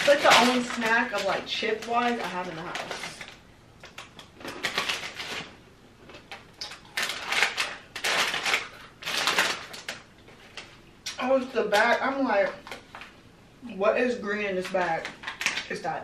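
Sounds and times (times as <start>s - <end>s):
chip bag rustling and crackling: 0.0s - 10.8s.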